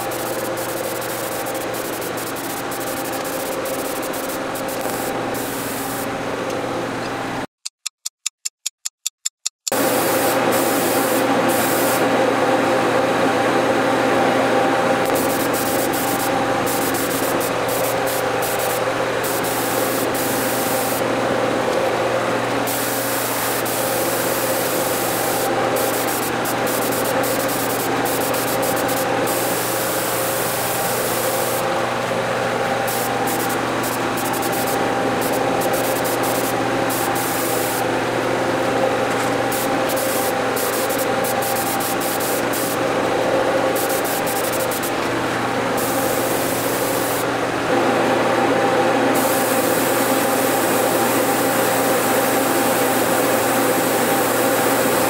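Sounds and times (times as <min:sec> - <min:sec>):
spray gun hissing: 0:00.0 - 0:06.1, 0:09.7 - 0:12.0, 0:15.1 - 0:21.1, 0:22.6 - 0:31.8, 0:32.8 - 0:37.9, 0:39.4 - 0:42.8, 0:43.7 - 0:45.0, 0:45.8 - 0:47.3, 0:49.1 - 0:55.0
mechanical hum: 0:00.0 - 0:07.5, 0:09.7 - 0:55.0.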